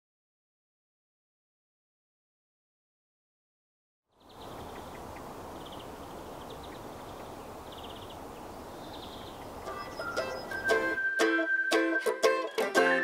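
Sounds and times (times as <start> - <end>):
plucked string music: 9.6 - 13.0.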